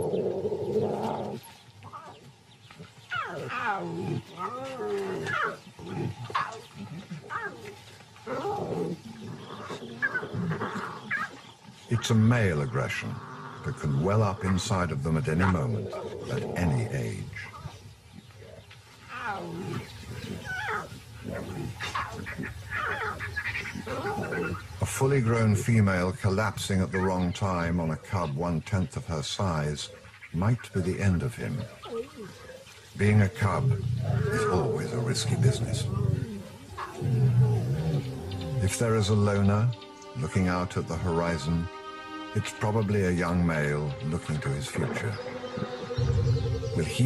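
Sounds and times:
lion cubs growling and yowling: 0:00.0 - 0:24.8, 0:29.9 - 0:39.6.

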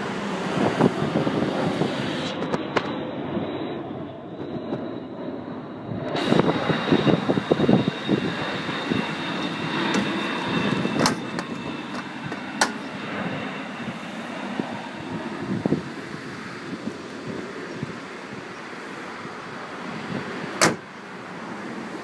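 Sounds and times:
wind buffeting microphone: 0:00.0 - 0:03.6, 0:05.8 - 0:22.0
car bonnet clicks: 0:20.6 - 0:20.8.

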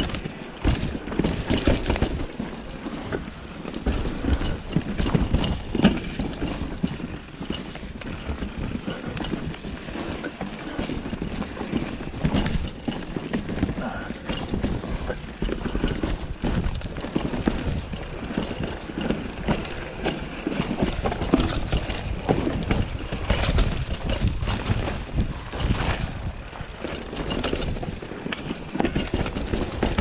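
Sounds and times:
bike knocks and rattles: 0:00.0 - 0:30.0
wind buffeting microphone: 0:13.6 - 0:28.1.

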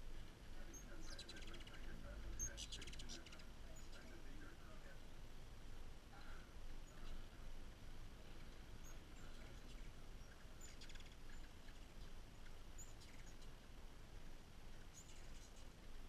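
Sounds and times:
hummingbird chips and chittering: 0:00.0 - 0:04.6, 0:08.3 - 0:16.0
low background noise: 0:00.0 - 0:16.0.

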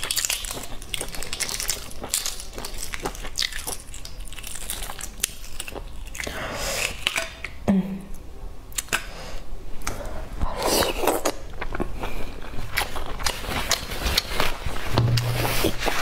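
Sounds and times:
chewing: 0:00.0 - 0:07.6, 0:10.6 - 0:14.8.

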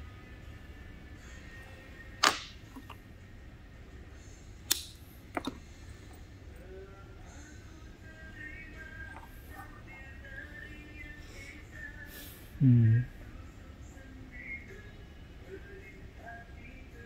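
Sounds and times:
pliers clicking on metal wire: 0:04.7 - 0:05.6.

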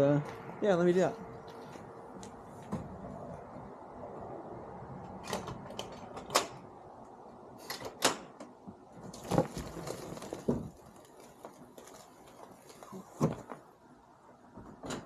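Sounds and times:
tent fabric rustling: 0:09.3 - 0:13.7.

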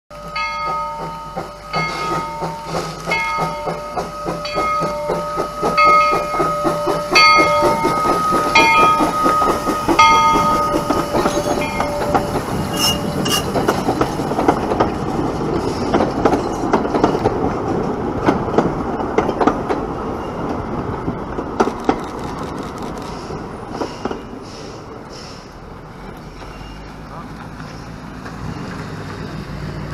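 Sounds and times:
locomotive bell ringing: 0:00.1 - 0:13.9
train cars clicking over rail joints: 0:00.1 - 0:29.9
wheel clatter: 0:00.3 - 0:19.8
brief high squeal: 0:12.6 - 0:13.6.

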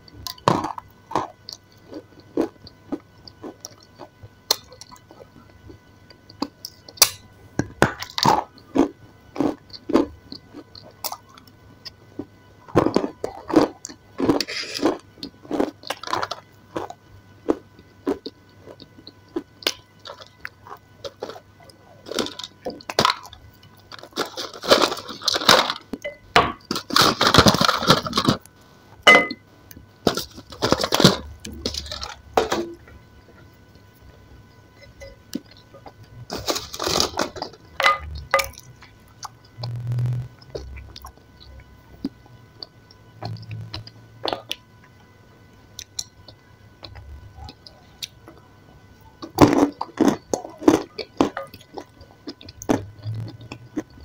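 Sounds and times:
chewing: 0:00.2 - 0:07.0, 0:08.0 - 0:28.4, 0:49.2 - 0:54.0.

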